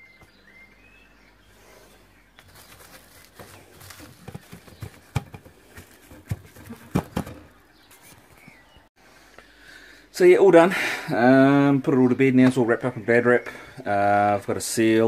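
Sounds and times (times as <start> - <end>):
cling film crinkling: 2.4 - 7.3.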